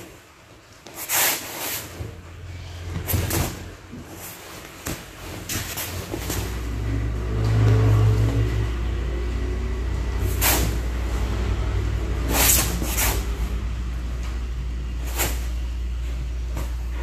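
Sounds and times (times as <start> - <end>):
low engine rumble: 2.2 - 17.0
rustling scuffs: 2.8 - 6.8.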